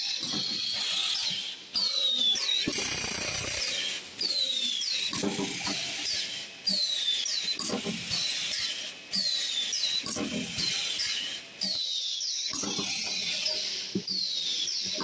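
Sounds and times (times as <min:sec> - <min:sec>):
machine squealing: 0:12.5 - 0:13.8.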